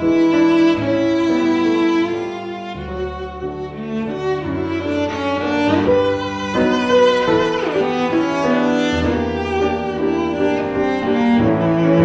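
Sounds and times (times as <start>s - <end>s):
cello and violin sustained notes: 0.0s - 12.0s.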